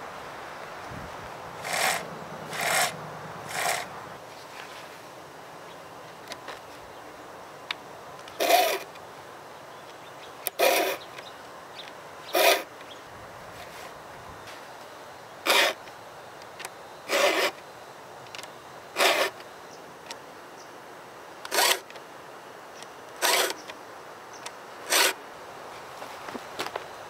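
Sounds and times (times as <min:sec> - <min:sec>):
file rasping on chainsaw chain: 0:01.6 - 0:03.9, 0:08.4 - 0:08.9, 0:10.5 - 0:11.1, 0:12.4 - 0:12.7, 0:15.5 - 0:15.8, 0:17.1 - 0:17.6, 0:19.0 - 0:19.4, 0:21.5 - 0:21.8, 0:23.2 - 0:23.6, 0:24.9 - 0:25.2.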